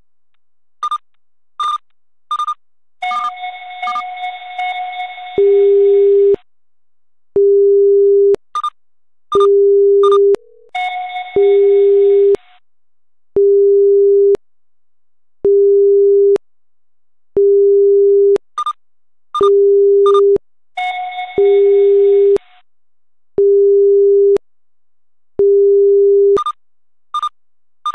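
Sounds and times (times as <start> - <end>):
steady low beep: 9.4 - 10.8.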